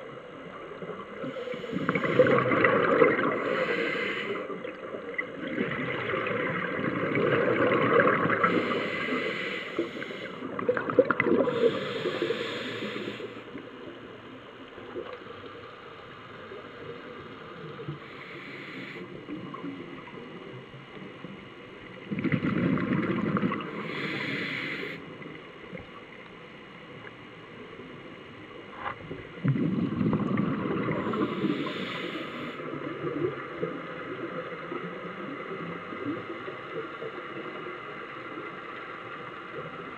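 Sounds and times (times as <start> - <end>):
hissing regulator inhalations: 1.2 - 4.8, 8.4 - 10.5, 11.4 - 13.6, 18.0 - 19.2, 23.6 - 25.1, 30.9 - 32.7
bubbling exhalations: 1.9 - 3.7, 5.4 - 8.8.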